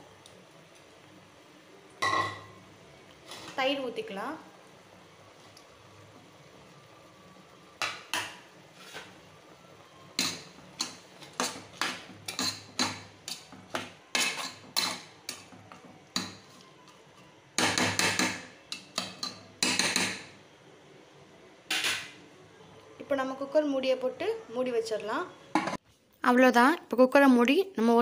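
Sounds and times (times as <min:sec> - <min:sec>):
spatula scraping metal pot: 0:08.7 - 0:09.2, 0:14.1 - 0:15.5.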